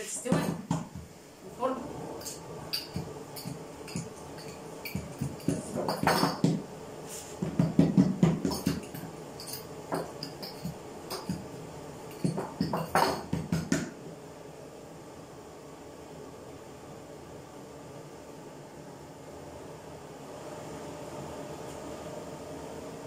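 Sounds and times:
rolling pin knocking on board: 0:00.2 - 0:01.1, 0:05.0 - 0:06.6, 0:07.4 - 0:08.9, 0:12.2 - 0:13.9.

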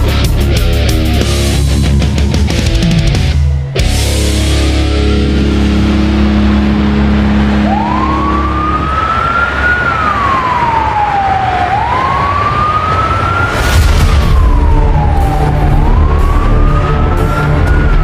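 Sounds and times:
wailing siren: 0:01.2 - 0:18.0
vehicle rushing: 0:04.0 - 0:18.0.

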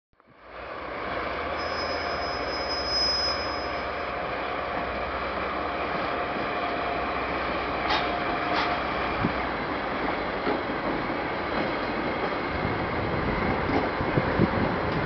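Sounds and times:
high wheel squeal: 0:01.5 - 0:04.1.

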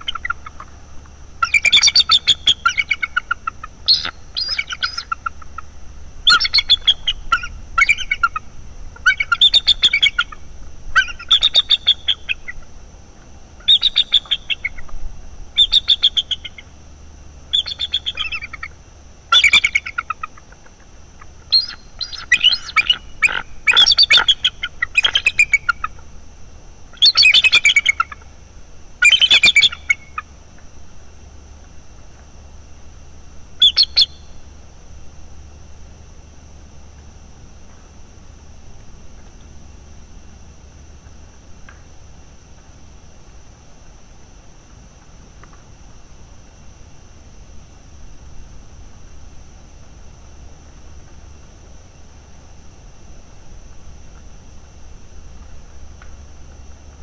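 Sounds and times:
eagles chattering calls: 0:01.4 - 0:05.7, 0:06.3 - 0:10.4, 0:17.5 - 0:26.0, 0:27.0 - 0:28.2.

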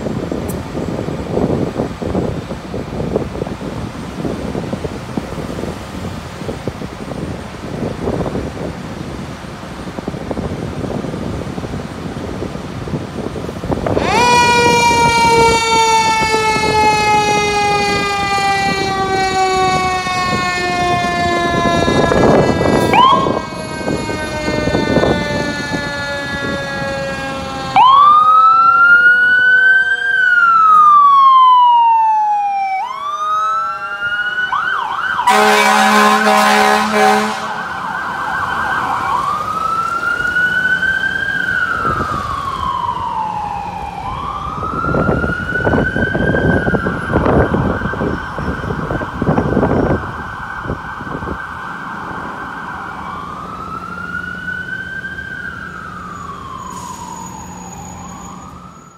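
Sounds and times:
siren wailing: 0:13.7 - 0:58.9
mechanical siren winding down: 0:13.8 - 0:58.9
air horn blast: 0:17.9 - 0:25.8, 0:35.2 - 0:37.7.

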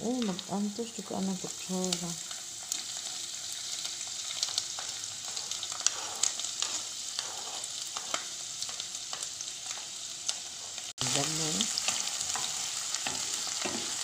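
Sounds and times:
onion sizzling in oil: 0:00.0 - 0:14.0.

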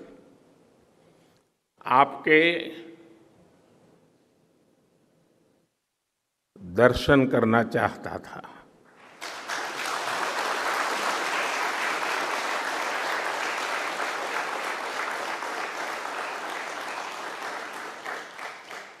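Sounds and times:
audience applauding: 0:08.9 - 0:19.0.

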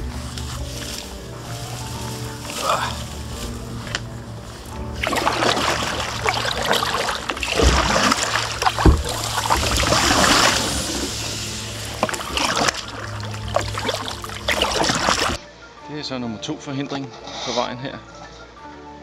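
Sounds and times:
paddle strokes through water: 0:01.7 - 0:15.4
splashing and dripping: 0:04.6 - 0:15.4
dull knocks: 0:06.7 - 0:10.5.

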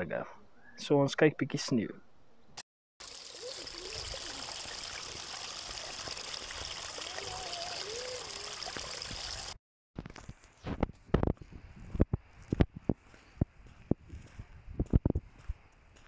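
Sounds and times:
stream trickling over stones: 0:03.0 - 0:09.6.

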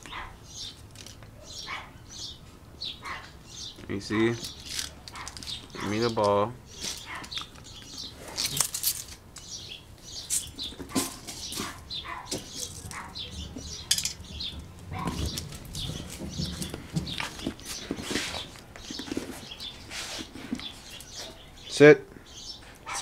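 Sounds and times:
dog scuffling: 0:04.1 - 0:09.2, 0:10.0 - 0:21.4.

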